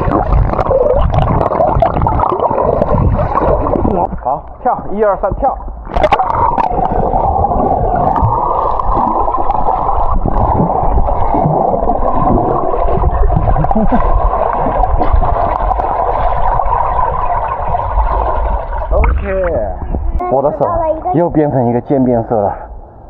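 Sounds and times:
muffled underwater rush of water: 0.0s - 23.0s.

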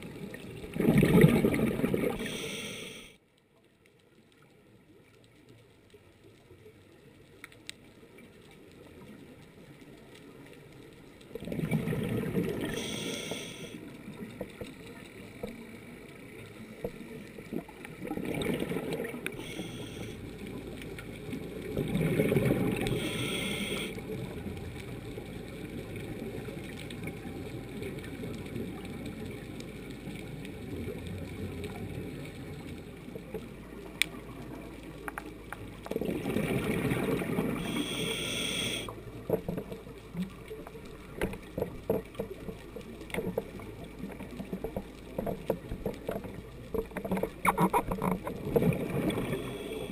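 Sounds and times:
gurgling exhaled bubbles: 0.0s - 2.4s, 11.3s - 13.0s, 17.3s - 19.7s, 21.2s - 29.4s, 35.8s - 38.0s, 39.2s - 49.9s
muffled underwater sound: 0.0s - 49.9s.

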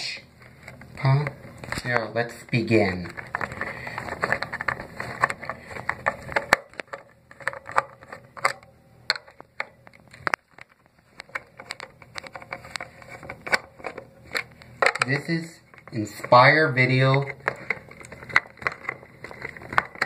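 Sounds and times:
objects clicking and scraping on countertop: 17.1s - 20.0s.

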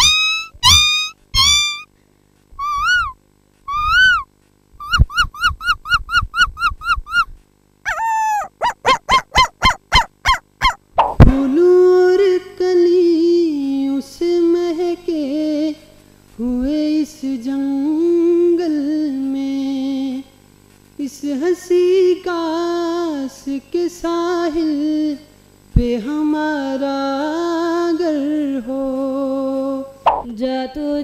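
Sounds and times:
person imitating dog yelps: 0.0s - 1.9s, 2.6s - 7.3s, 7.9s - 11.2s, 30.1s - 30.3s.

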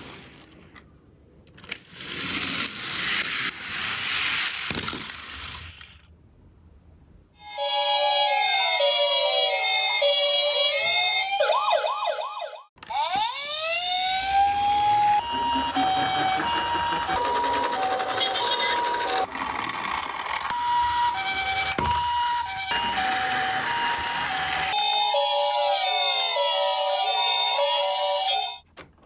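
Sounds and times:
toy rolling on wooden slope: 0.0s - 0.8s, 1.4s - 6.1s, 12.8s - 24.8s
toy ambulance two-tone siren: 7.4s - 19.3s, 20.3s - 28.6s.

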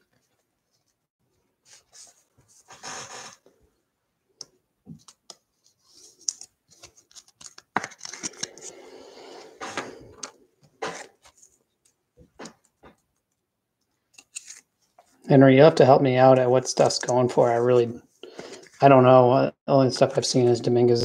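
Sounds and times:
papery sliding scrape: 1.6s - 3.4s.

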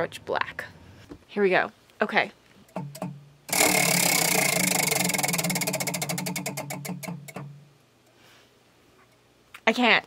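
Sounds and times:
spinner wheel ticking: 2.7s - 7.6s.

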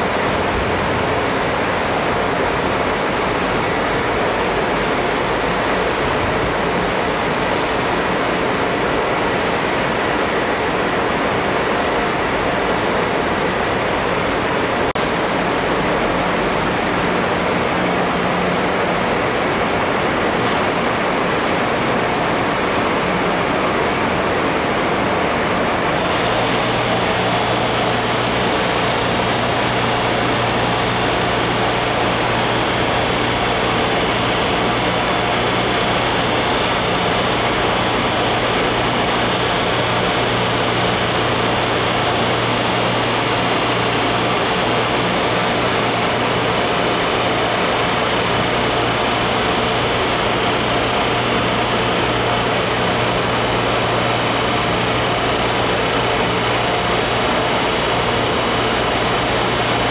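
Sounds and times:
mechanical hum with fan whir: 0.0s - 59.9s.

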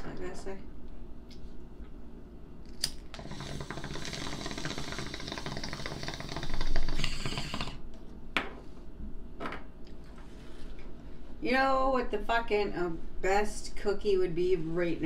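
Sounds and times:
water bubbling: 3.2s - 7.7s.

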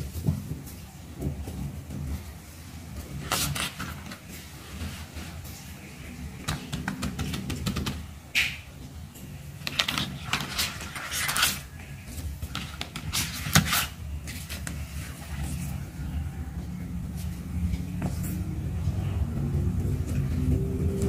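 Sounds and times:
low background hum: 0.0s - 21.0s
plastic sleeves crinkling: 9.6s - 15.9s.

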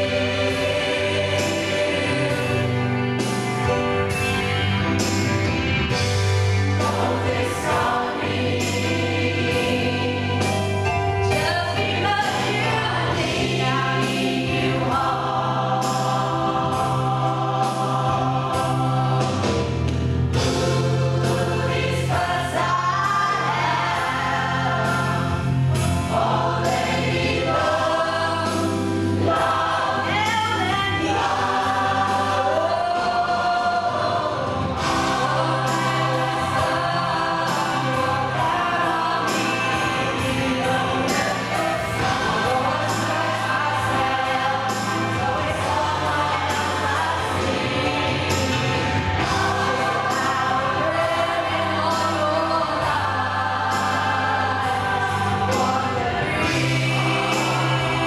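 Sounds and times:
choir singing: 0.0s - 5.3s, 5.9s - 58.0s
instrumental accompaniment with bass: 0.0s - 58.0s.

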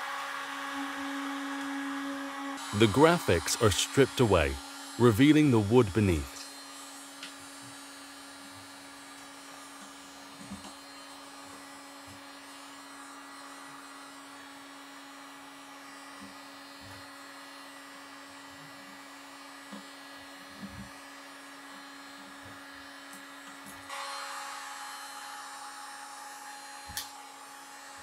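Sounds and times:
heat gun humming: 0.0s - 14.5s, 20.5s - 28.0s.

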